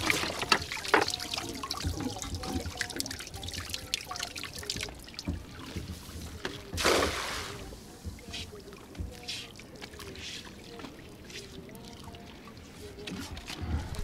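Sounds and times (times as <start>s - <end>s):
water dripping off net: 0.0s - 10.1s
cast net splashing on water: 0.0s - 13.7s.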